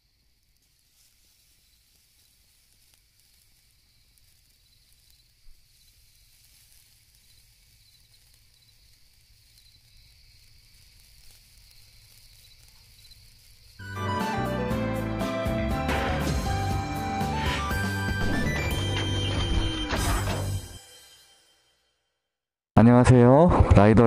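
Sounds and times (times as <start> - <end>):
night insects chirping: 0.0 - 14.0
soft hiss: 0.0 - 14.1
music: 13.8 - 22.1.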